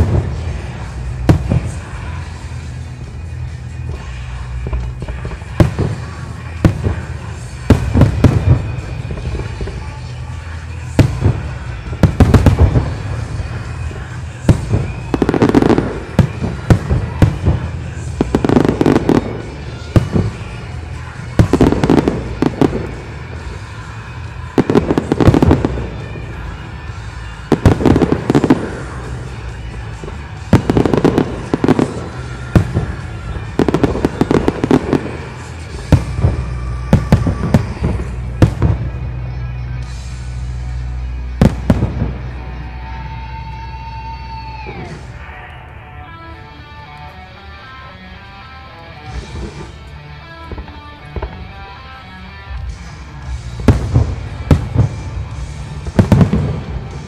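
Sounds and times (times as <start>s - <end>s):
firework shells bursting with crackle: 0.0s - 39.2s, 52.5s - 57.0s.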